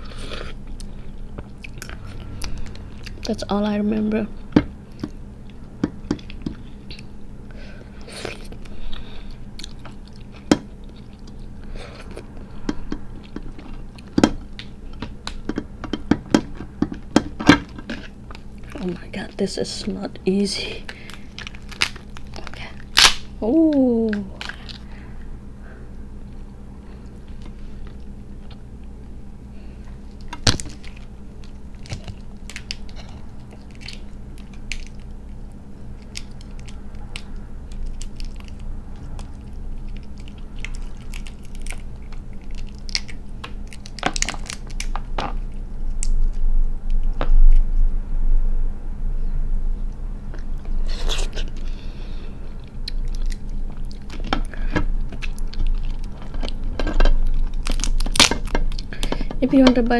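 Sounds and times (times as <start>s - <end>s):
crab shell cracking: 20.9s - 24.9s, 30.0s - 46.4s, 52.6s - 59.4s.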